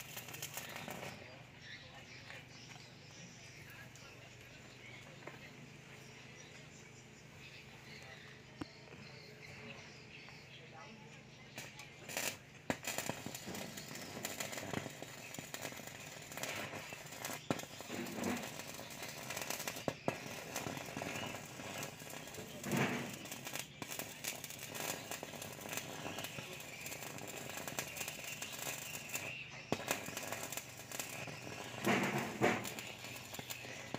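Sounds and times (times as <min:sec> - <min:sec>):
welding arc crackling: 0:00.0 - 0:01.5, 0:11.5 - 0:33.9
sharp pops: 0:11.6 - 0:33.9.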